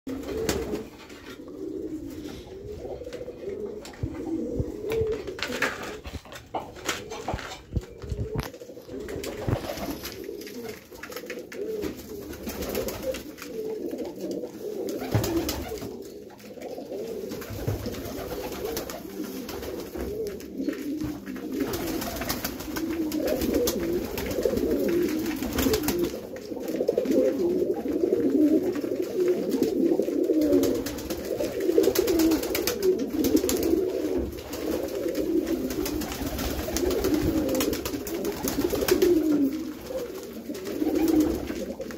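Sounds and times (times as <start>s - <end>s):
pigeons cooing: 0.1s - 41.9s
wing flaps: 4.9s - 11.2s.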